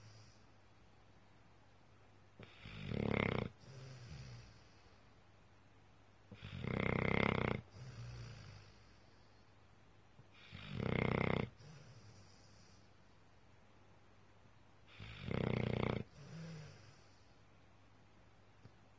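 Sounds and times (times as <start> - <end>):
dog snoring: 2.4 - 4.8, 6.3 - 9.0, 10.3 - 12.9, 14.9 - 17.3.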